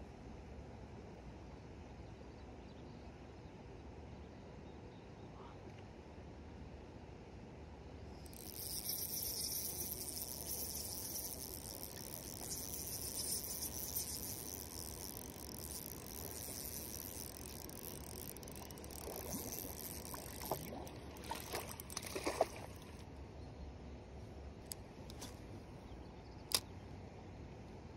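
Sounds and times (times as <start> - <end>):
steady high hiss: 8.2 - 22.0
fish splashing in water: 8.3 - 23.0.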